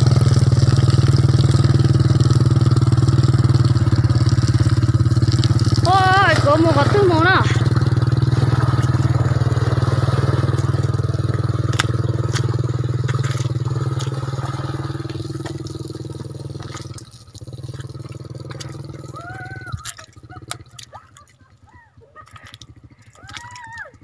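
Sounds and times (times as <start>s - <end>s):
small motorcycle engine in mud: 0.0s - 24.0s
sharp clicks and crunches: 10.5s - 14.2s, 22.2s - 24.0s.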